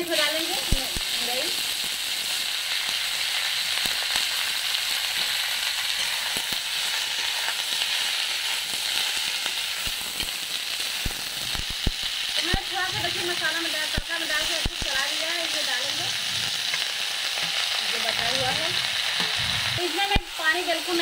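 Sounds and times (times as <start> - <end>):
vegetables sizzling in oil: 0.0 - 21.0
ladle stirring vegetables: 16.4 - 19.8.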